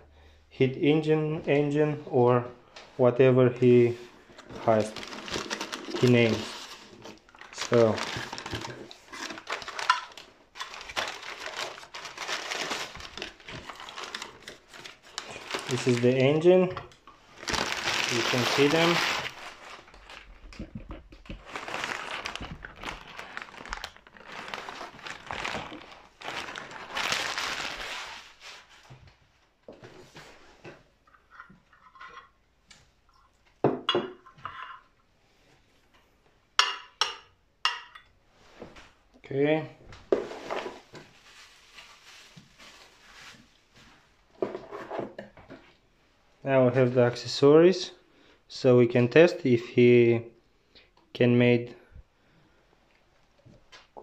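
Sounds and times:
packing paper crinkling: 4.3 - 16.5, 17.2 - 28.8, 40.2 - 43.6.

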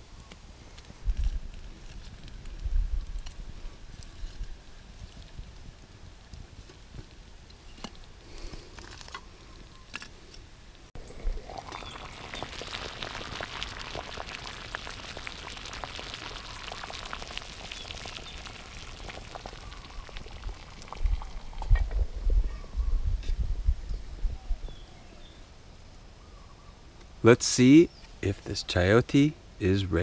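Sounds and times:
wood fire crackling: 0.0 - 9.7, 10.7 - 22.3
water boiling in a pot: 11.0 - 22.3.

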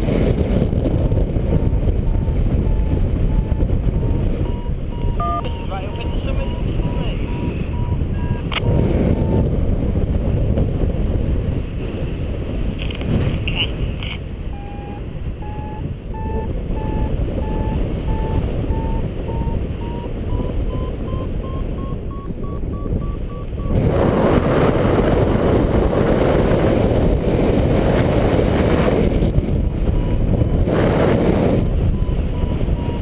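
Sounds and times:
wind rushing on microphone: 0.0 - 33.0
variometer beeping: 0.9 - 9.8, 14.5 - 24.2, 29.2 - 33.0.

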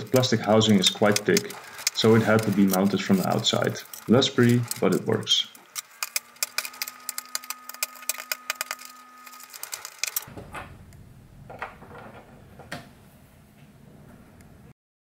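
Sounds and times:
knife scraping plastic: 0.0 - 10.3
faint steady hum: 0.0 - 14.7.

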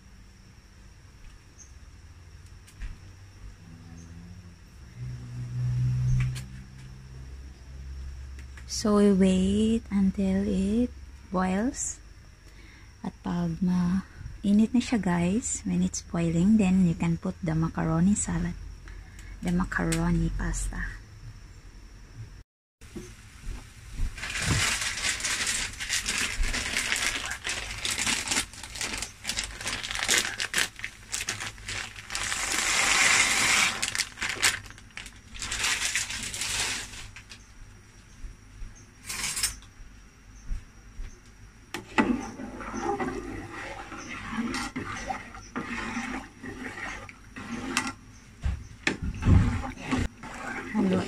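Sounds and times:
dry pasta poured into boiling water: 24.2 - 37.2
metal ladle stirring in pot: 41.8 - 48.0, 49.2 - 51.0.

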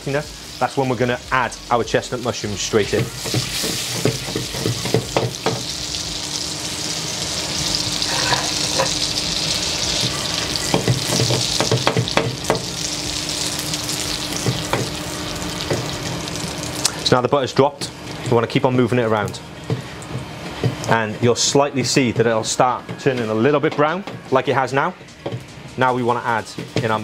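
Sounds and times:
butter sizzling in a pan: 0.0 - 17.1.

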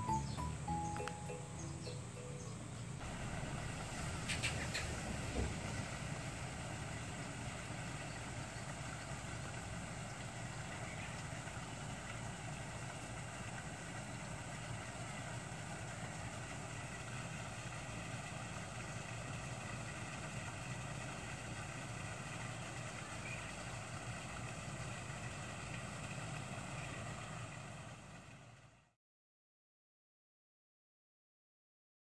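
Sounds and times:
faint steady tones: 0.0 - 5.5
machine hum: 0.0 - 13.2.

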